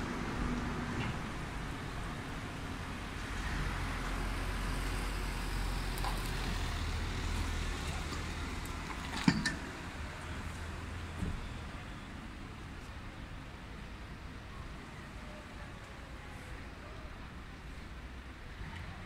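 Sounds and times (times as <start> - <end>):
tyre and road noise: 0.0 - 13.8
vehicle engines humming: 0.0 - 13.8.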